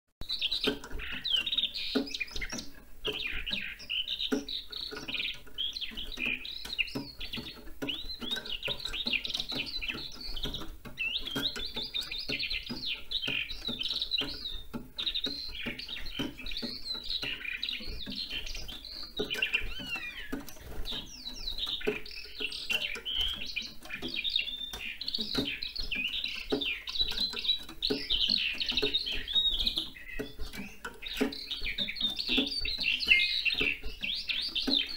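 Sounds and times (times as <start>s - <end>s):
skylark singing: 0.2s - 34.9s.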